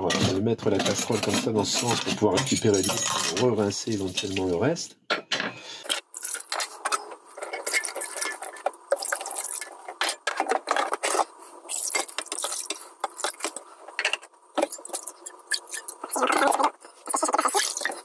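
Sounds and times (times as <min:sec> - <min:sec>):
water pouring into saucepan: 0:07.6 - 0:09.8.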